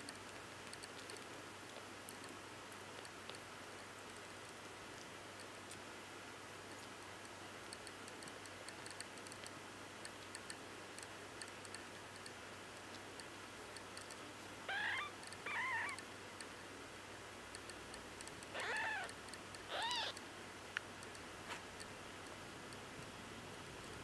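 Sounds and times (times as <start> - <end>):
kitten mewing: 14.7 - 16.0, 18.5 - 20.2.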